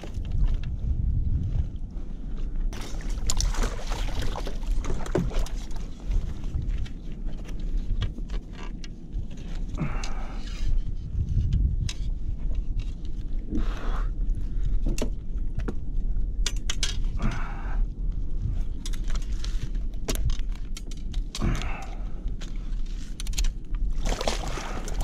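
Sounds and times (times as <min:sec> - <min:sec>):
steady low rumble: 0:00.0 - 0:25.0.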